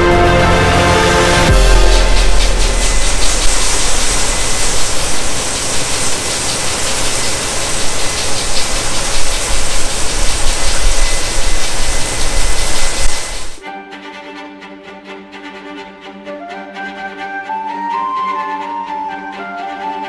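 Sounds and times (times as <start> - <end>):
grain pouring hiss: 0.5 - 13.6.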